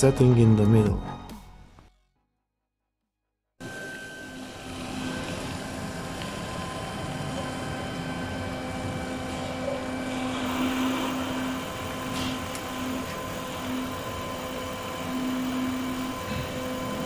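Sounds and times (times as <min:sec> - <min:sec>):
heater fan motor hum and hiss: 0:03.6 - 0:17.0.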